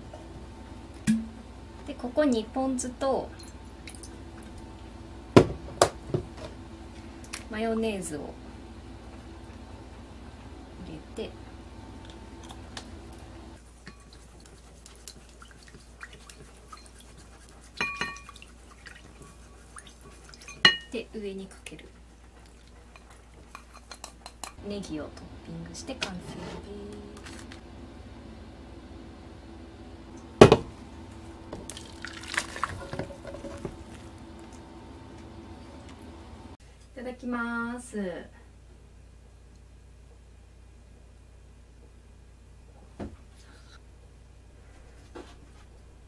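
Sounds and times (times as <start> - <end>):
chopsticks stirring sauce: 13.6 - 20.6
soup splashing into bowl: 31.6 - 33.0.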